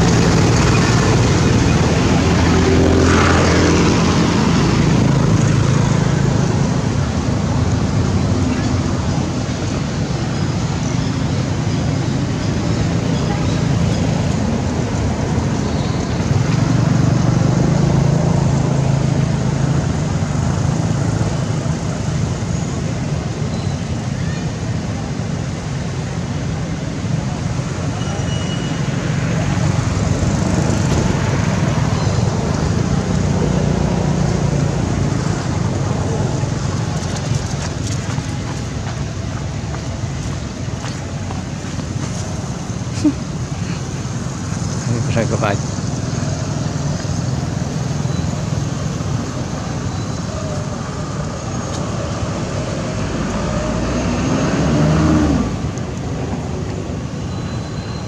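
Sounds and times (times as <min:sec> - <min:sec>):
engine humming: 0:00.0 - 0:23.4, 0:25.0 - 0:58.0
brief squeak: 0:28.0 - 0:28.8.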